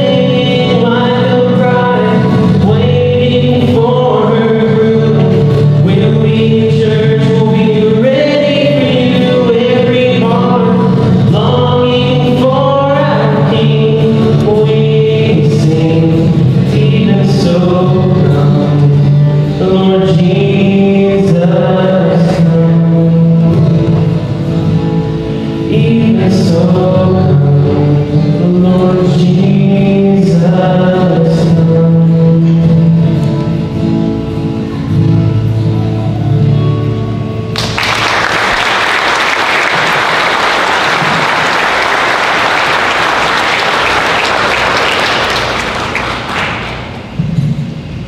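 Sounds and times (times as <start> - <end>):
person singing: 0.0 - 24.4, 25.3 - 33.5
audience applauding: 37.6 - 47.0.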